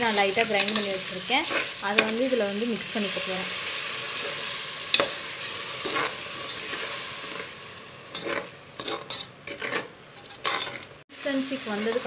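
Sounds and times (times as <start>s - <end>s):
masala sizzling in a pot: 0.0s - 12.0s
metal spoon scraping a pot: 8.1s - 10.9s.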